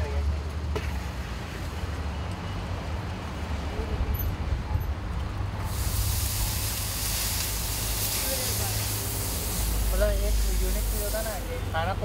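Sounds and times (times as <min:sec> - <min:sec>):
street traffic rumble: 0:00.0 - 0:12.0
water sizzling on hot griddle: 0:05.6 - 0:12.0.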